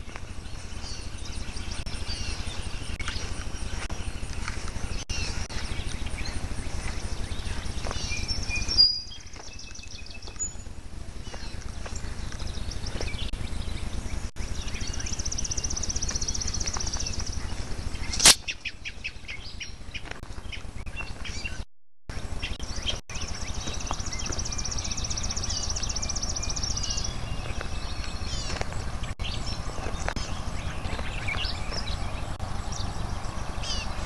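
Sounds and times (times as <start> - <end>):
songbird trilling: 0.0 - 21.6, 22.3 - 34.0
low rumble: 0.0 - 34.0
sharp click: 18.2 - 18.5.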